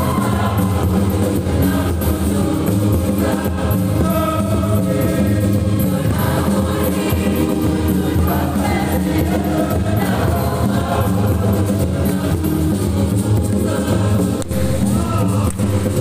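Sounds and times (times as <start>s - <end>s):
choir singing: 0.0s - 16.0s.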